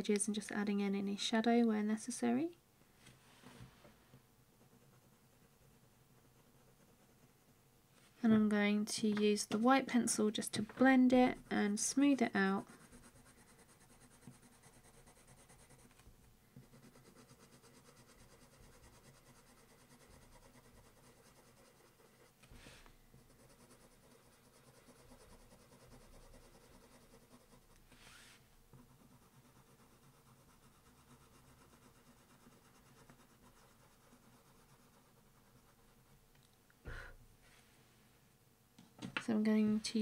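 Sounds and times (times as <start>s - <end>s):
coloured pencil scratching on paper: 4.5s - 7.6s, 10.8s - 16.0s, 16.6s - 36.1s.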